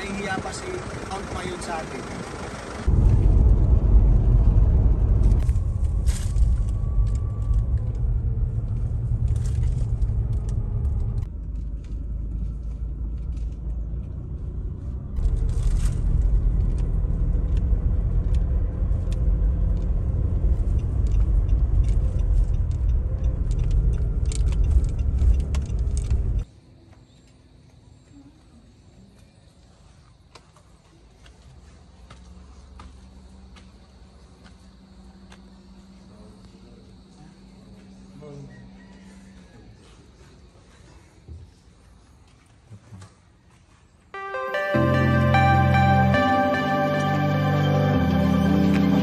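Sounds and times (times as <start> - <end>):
car driving rumble: 0.0 - 26.4.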